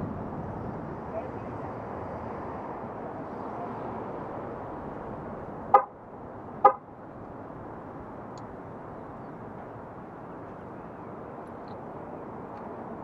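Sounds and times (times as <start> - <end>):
road noise: 0.0 - 13.0
car horn toots: 5.7 - 5.9, 6.6 - 6.8.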